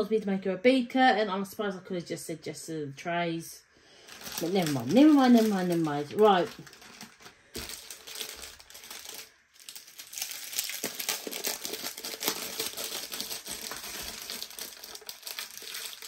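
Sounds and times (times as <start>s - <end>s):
plastic bags crinkling: 4.0s - 16.0s.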